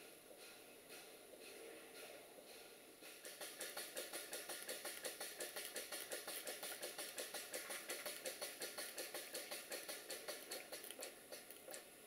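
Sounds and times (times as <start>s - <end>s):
model steam engine chuffing: 0.0s - 11.9s.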